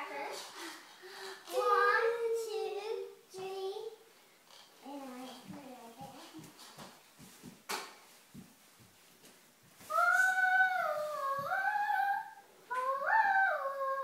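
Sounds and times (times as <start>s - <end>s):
girl humming: 9.9s - 14.0s.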